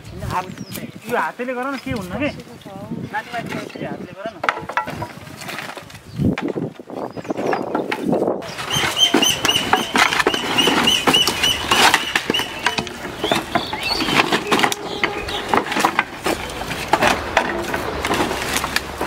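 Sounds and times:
wooden planks knocking and clattering: 0:03.2 - 0:19.0
high chirp: 0:08.4 - 0:15.7.

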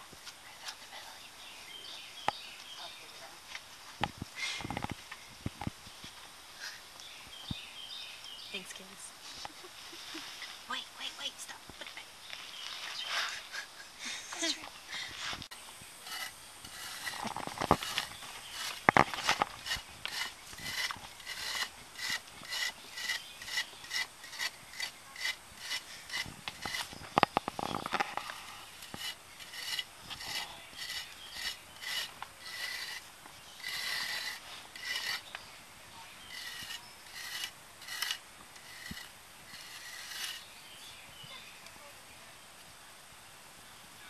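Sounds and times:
hand tool scraping soil: 0:15.2 - 0:35.5, 0:36.1 - 0:40.9.

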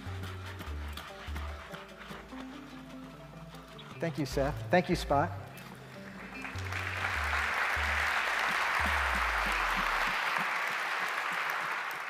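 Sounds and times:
audience applauding: 0:06.0 - 0:12.0.

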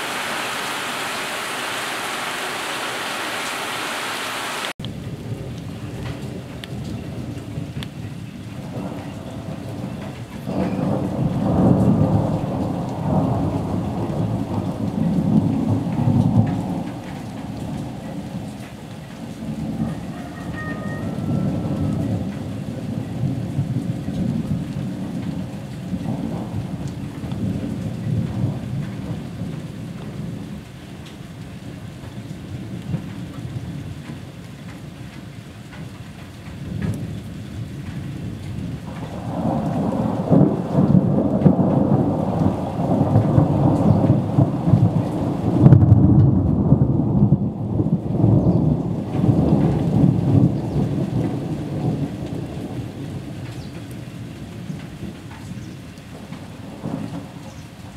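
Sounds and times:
steady rain: 0:00.0 - 0:57.9
rolling thunder: 0:04.8 - 0:31.0, 0:35.7 - 0:57.9.

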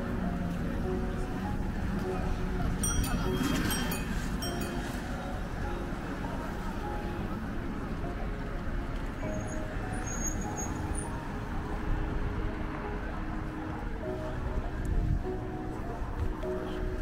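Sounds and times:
cars passing: 0:00.0 - 0:17.0
hum of engines and tyres: 0:00.0 - 0:17.0.

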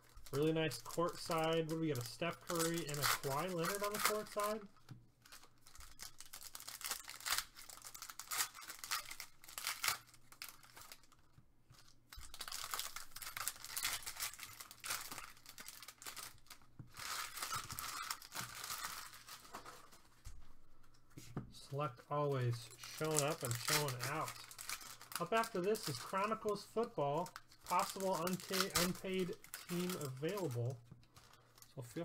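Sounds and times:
cards being handled: 0:00.0 - 0:04.6, 0:22.8 - 0:31.4
foil wrapper tearing and crinkling: 0:00.0 - 0:11.2, 0:11.8 - 0:20.1, 0:22.7 - 0:32.0.

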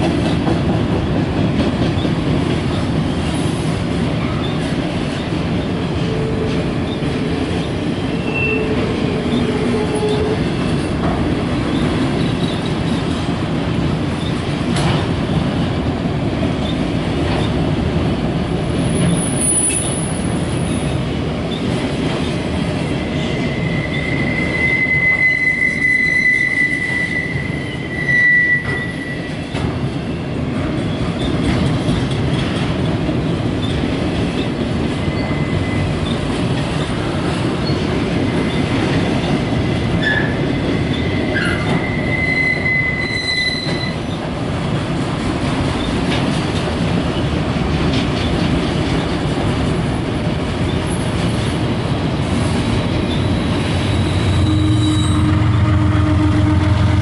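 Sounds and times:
steel wheels rumbling on rail: 0:00.0 - 0:57.0
high wheel squeals: 0:23.0 - 0:29.3, 0:40.0 - 0:44.1, 0:53.0 - 0:57.0.

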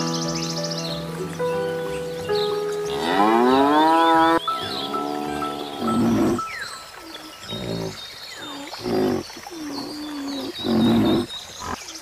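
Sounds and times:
small birds chirping: 0:00.0 - 0:12.0
animal low calls: 0:04.2 - 0:12.0.

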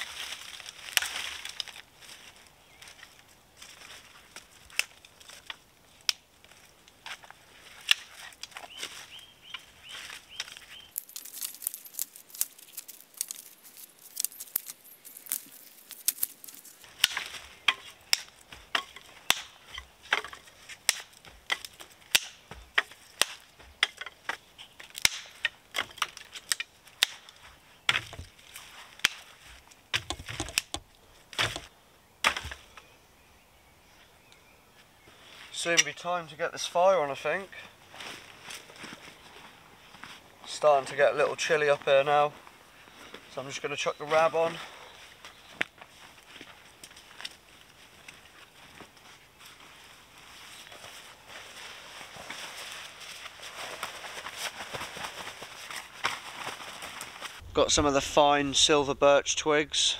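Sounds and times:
dry branches snapping: 0:00.0 - 0:02.2, 0:02.8 - 0:32.6
twigs rustling: 0:00.0 - 0:32.8, 0:37.2 - 0:58.0.

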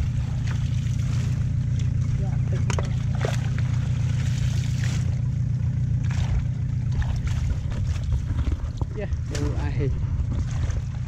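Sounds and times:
water splashing from net: 0:00.0 - 0:08.6
low motor drone: 0:00.0 - 0:11.0.

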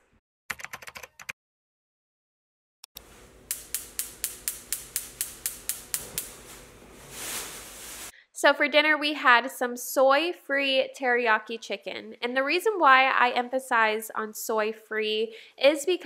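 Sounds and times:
gas burner hiss: 0:03.0 - 0:08.1
gas igniter ticking: 0:03.4 - 0:06.4.

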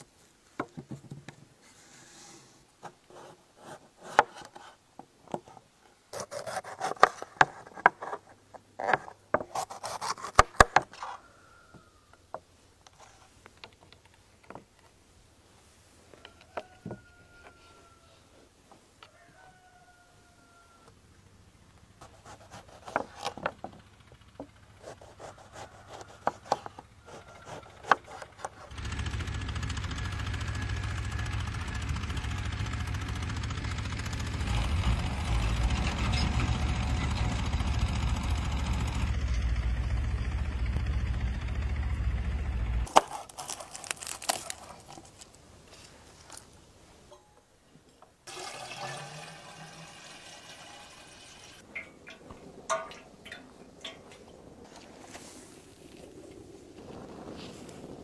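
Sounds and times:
knife slicing onion on wooden board: 0:03.1 - 0:04.7, 0:06.2 - 0:08.2, 0:08.8 - 0:10.8, 0:22.0 - 0:23.4, 0:24.8 - 0:28.7
tractor diesel engine rumbling: 0:22.9 - 0:27.0, 0:27.7 - 0:46.6.

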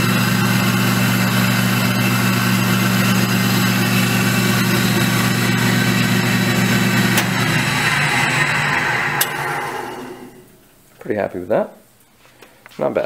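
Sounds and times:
table saw motor humming: 0:00.0 - 0:10.5.

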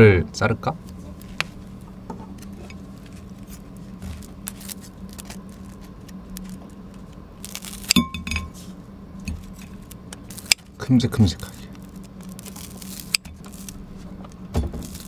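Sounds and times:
steady low hum: 0:00.0 - 0:15.0
scissors cutting crispy cutlet: 0:02.3 - 0:08.0, 0:09.4 - 0:10.7, 0:11.3 - 0:15.0.

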